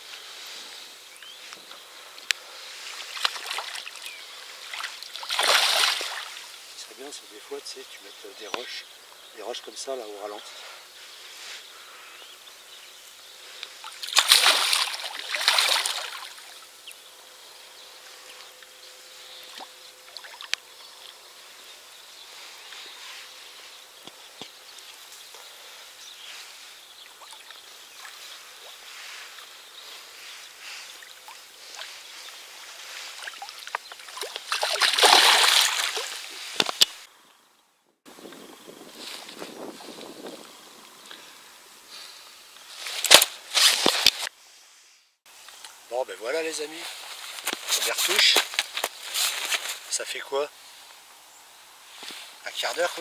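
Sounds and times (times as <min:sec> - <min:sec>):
soft wash of water: 0:02.6 - 0:06.8, 0:26.4 - 0:36.6
fish thrashing and splashing: 0:04.6 - 0:06.4, 0:13.8 - 0:16.6, 0:33.1 - 0:36.8.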